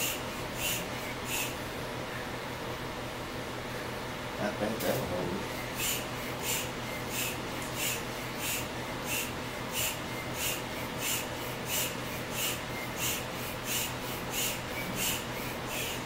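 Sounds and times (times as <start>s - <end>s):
hand air pump hissing: 0.0s - 1.6s, 5.6s - 16.0s.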